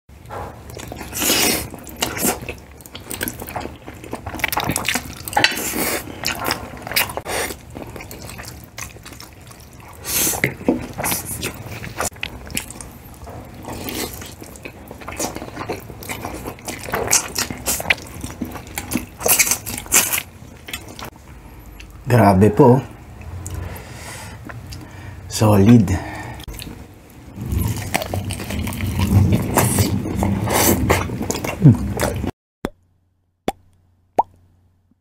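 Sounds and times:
chewing mouth sounds: 0.7s - 21.1s.

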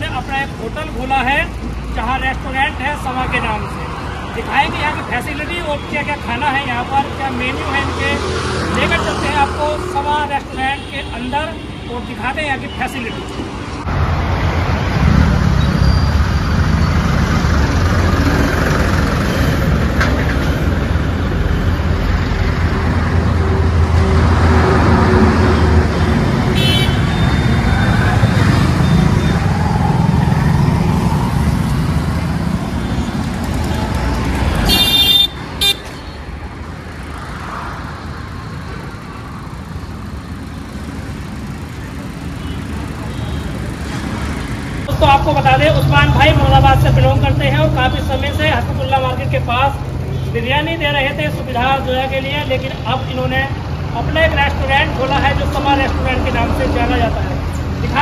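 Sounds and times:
road traffic rumble: 0.0s - 58.0s
vehicle horn toots: 26.5s - 27.5s, 34.7s - 36.1s.

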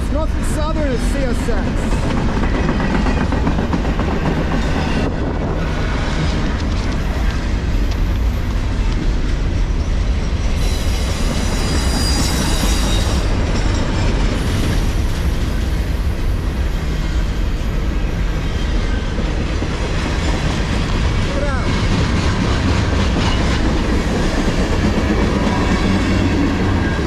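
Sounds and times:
freight train wheels rumbling on rail: 0.0s - 27.0s
high wheel squeal: 9.7s - 14.8s.

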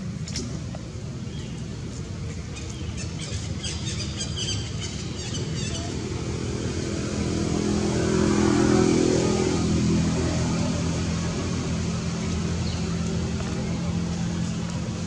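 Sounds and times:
engine running steadily: 4.5s - 15.0s.

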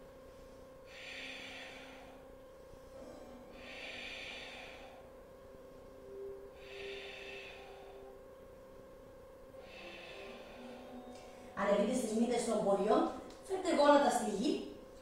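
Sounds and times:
woman breathing slowly: 0.1s - 11.6s.

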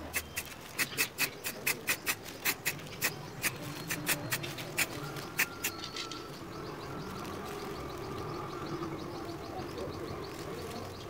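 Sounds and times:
spray paint can spraying: 0.0s - 5.7s.

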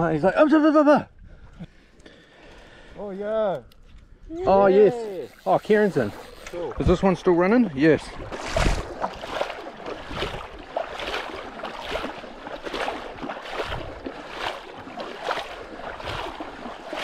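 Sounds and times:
water splashing from wading: 5.0s - 17.0s.

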